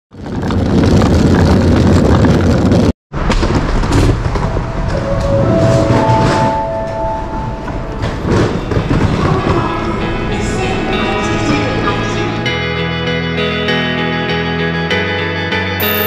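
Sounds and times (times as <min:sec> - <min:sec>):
suitcase wheels rolling over asphalt: 0:00.1 - 0:06.4
hubbub of airport terminal hall: 0:07.6 - 0:12.6
steady electronic tones: 0:15.8 - 0:16.0.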